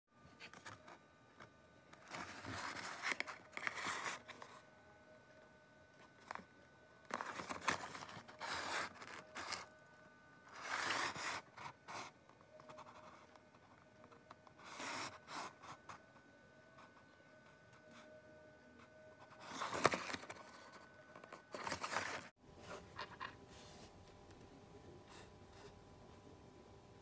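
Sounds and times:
cardboard box scraping and rustling: 19.4s - 20.7s, 21.5s - 22.9s.

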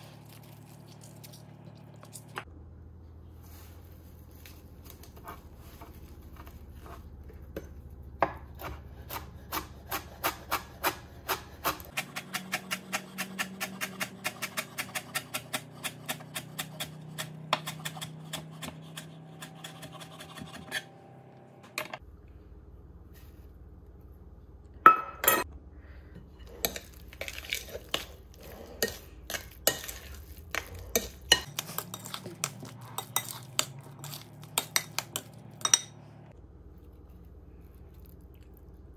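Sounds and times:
spoon scraping glass bowl: 26.5s - 35.9s.

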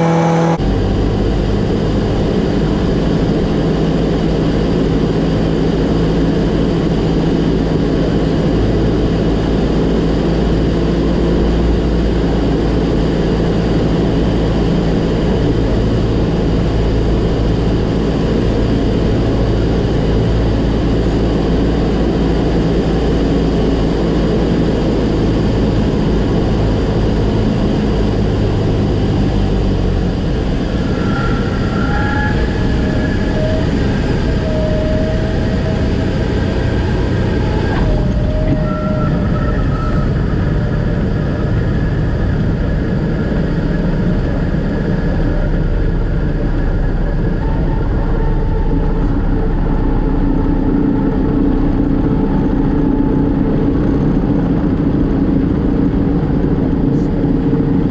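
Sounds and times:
heavy wind rush: 0.0s - 57.9s
propeller airplane engine running: 0.0s - 57.9s.

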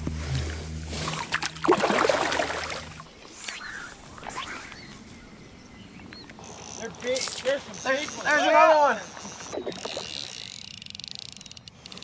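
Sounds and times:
water splashing and sloshing: 0.0s - 5.0s
quiet outdoor ambience: 0.0s - 12.0s
bird chirping: 3.5s - 8.3s.

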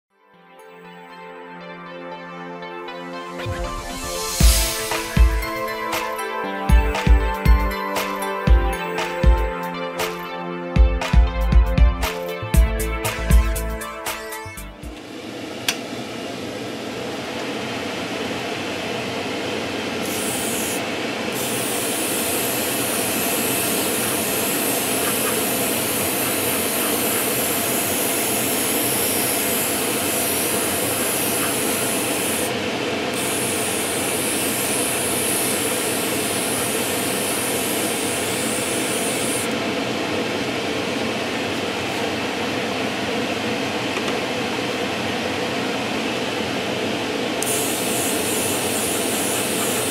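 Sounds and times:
low rush of air: 3.5s - 5.9s
airbrush spraying hiss: 3.6s - 6.4s, 21.4s - 32.5s, 33.2s - 39.5s, 47.4s - 49.9s.

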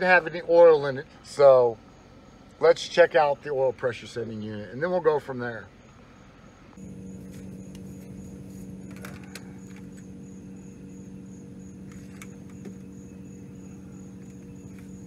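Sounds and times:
faint high pulsing chirp: 5.7s - 15.0s
steady hum: 6.3s - 15.0s.

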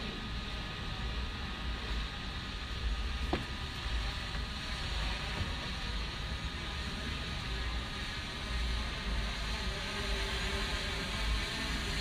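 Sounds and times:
drone propellers whirring: 3.0s - 12.0s.

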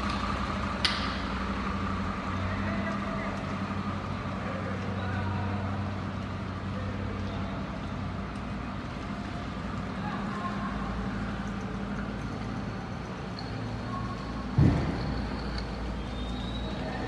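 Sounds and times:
low mechanical hum: 0.0s - 17.0s
outdoor city noise: 0.0s - 17.0s
heavy thump: 14.5s - 15.4s.

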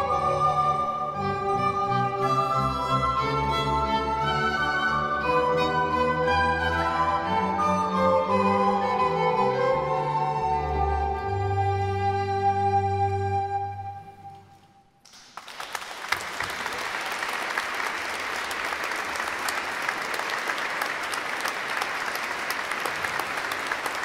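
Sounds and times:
audience applause: 15.0s - 24.0s.

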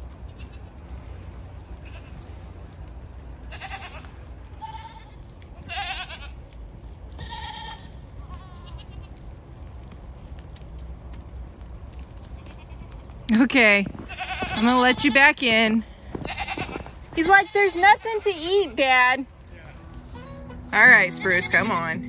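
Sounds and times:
low steady rumble: 0.0s - 22.0s
goat bleating: 1.8s - 2.3s, 3.5s - 6.4s, 7.2s - 9.2s, 12.4s - 13.4s, 14.0s - 22.0s.

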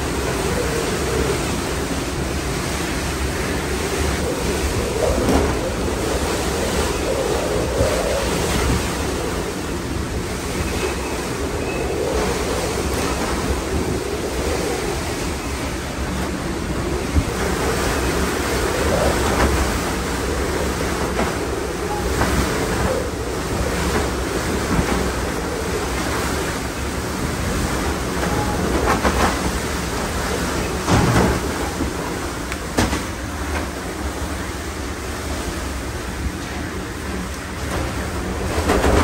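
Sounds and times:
wind and driving rain: 0.0s - 39.0s.

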